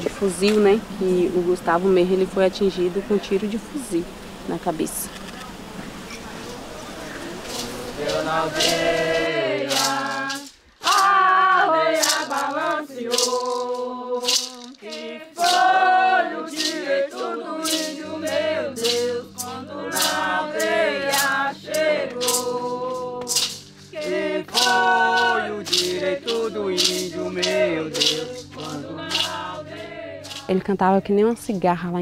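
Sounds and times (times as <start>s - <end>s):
shaker beat: 0.0s - 4.0s, 6.2s - 32.0s
group of voices chanting: 7.2s - 14.2s, 24.0s - 30.5s.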